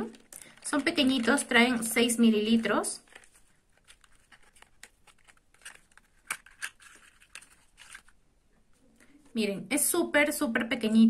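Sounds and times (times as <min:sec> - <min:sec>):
paper rustling: 0:02.4 - 0:08.2.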